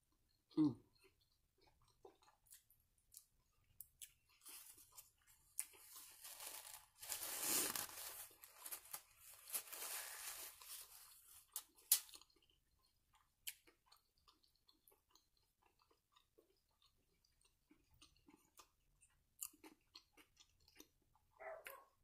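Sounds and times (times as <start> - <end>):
faint chewing: 0.1 - 22.0
paper wrapper crinkling: 4.5 - 12.0.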